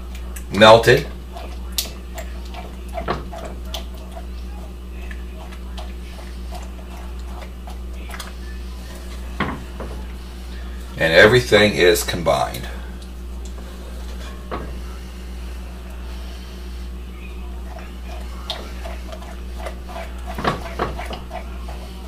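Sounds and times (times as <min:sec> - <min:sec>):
steady low hum: 0:00.0 - 0:22.0
wooden spoon scraping a pot: 0:17.6 - 0:22.0.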